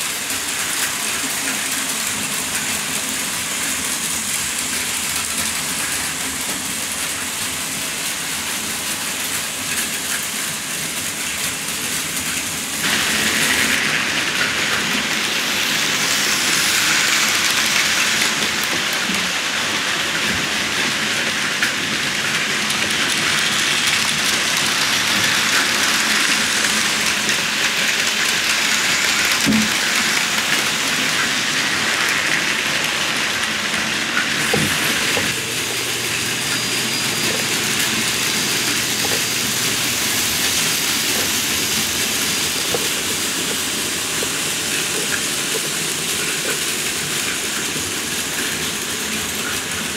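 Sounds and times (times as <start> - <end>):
toy trains whirring and rattling: 0.0 - 49.9.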